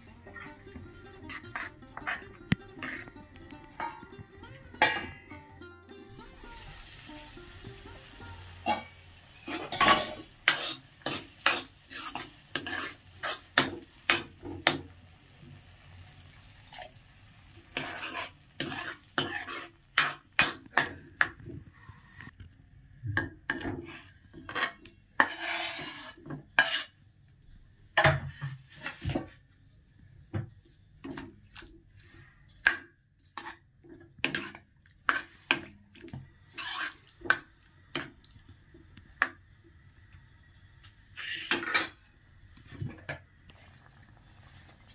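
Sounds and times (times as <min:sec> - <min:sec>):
metal ladle scraping a pan: 0:00.0 - 0:14.8, 0:17.7 - 0:21.0, 0:23.6 - 0:27.0, 0:34.2 - 0:35.7, 0:36.5 - 0:38.1, 0:41.1 - 0:42.1.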